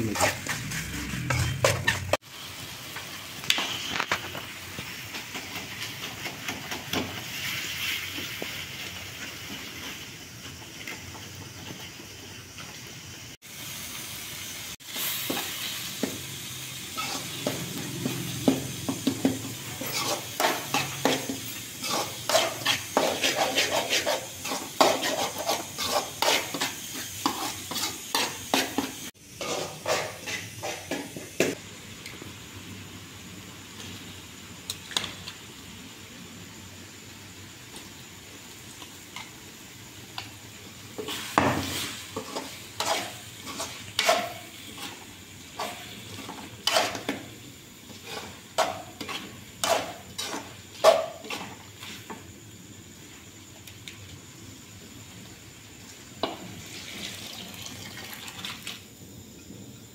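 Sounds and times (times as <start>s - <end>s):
masala sizzling in a pan: 0.0s - 59.9s
metal spatula scraping pan: 0.1s - 2.2s, 16.9s - 31.1s, 41.0s - 47.2s, 48.0s - 51.9s.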